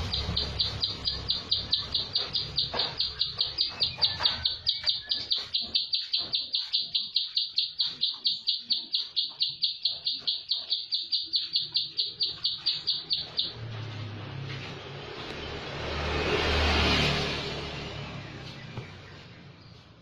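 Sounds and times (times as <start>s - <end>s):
bird calling sharp repeated notes: 0.0s - 13.6s.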